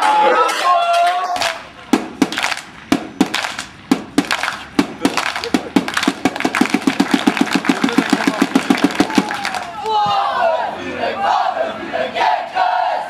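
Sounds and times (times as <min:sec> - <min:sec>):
sharp claps or knocks: 0:01.4 - 0:09.9.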